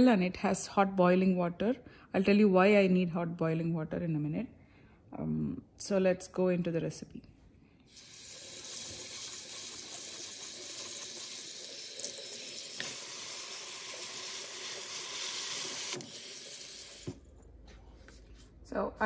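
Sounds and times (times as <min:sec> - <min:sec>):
tap running water: 0:07.9 - 0:17.3.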